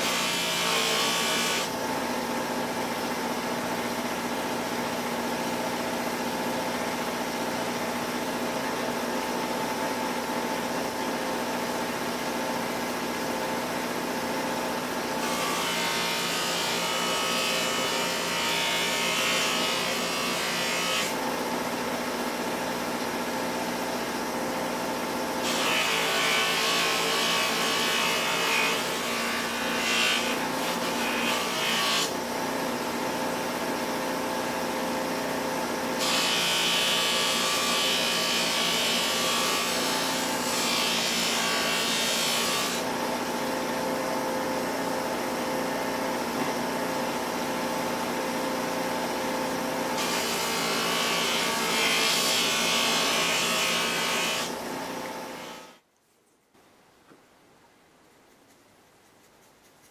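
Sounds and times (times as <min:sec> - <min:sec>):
bench grinder running: 0:00.0 - 0:01.8.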